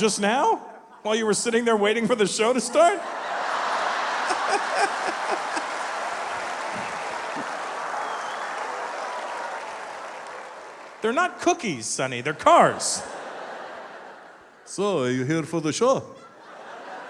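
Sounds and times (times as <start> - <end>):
audience laughing: 2.6 - 8.4, 12.3 - 15.3, 16.1 - 17.0
audience applauding: 3.4 - 11.1.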